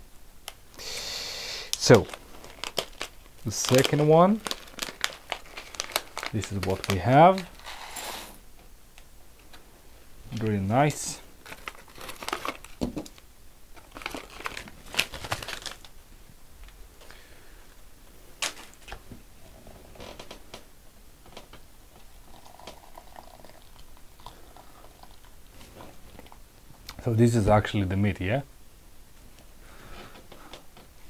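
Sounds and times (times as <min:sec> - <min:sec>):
foil packets crinkling: 0:01.7 - 0:07.8, 0:10.4 - 0:13.2, 0:13.8 - 0:16.0, 0:18.4 - 0:19.0
faint handling sounds: 0:01.7 - 0:08.4.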